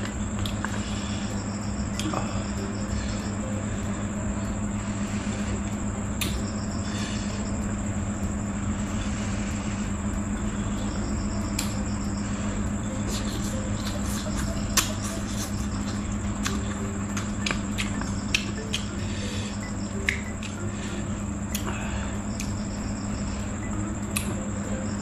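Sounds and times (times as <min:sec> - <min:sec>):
cricket trill: 0:00.0 - 0:25.0
low hum: 0:00.0 - 0:25.0
wet mouth clicks: 0:13.1 - 0:18.9.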